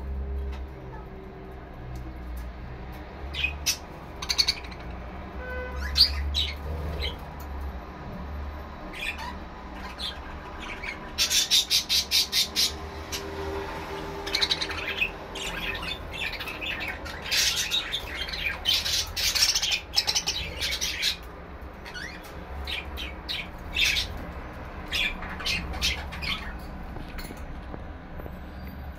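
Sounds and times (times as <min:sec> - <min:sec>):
budgerigars chattering and squawking: 0:03.3 - 0:05.1, 0:05.7 - 0:07.3, 0:08.9 - 0:26.8.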